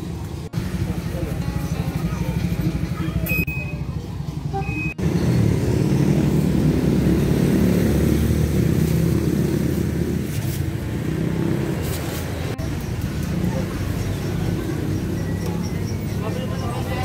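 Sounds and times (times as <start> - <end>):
vehicle engine rumbling: 0.0 - 17.0.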